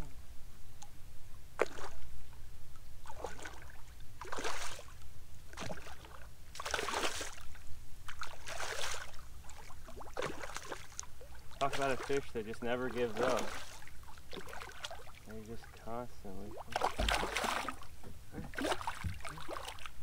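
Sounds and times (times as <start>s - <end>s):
fish splashing at surface: 10.0s - 12.3s, 13.1s - 15.2s, 16.5s - 19.9s.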